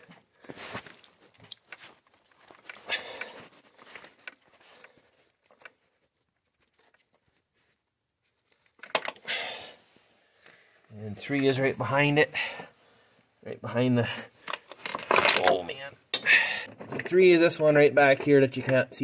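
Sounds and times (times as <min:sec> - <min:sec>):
faint rustling and light clicks: 0:00.0 - 0:09.1.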